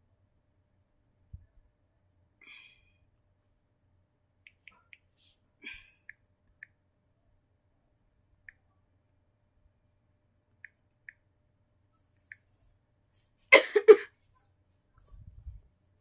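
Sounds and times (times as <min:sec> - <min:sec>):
on-screen keyboard clicks: 0:04.4 - 0:05.1.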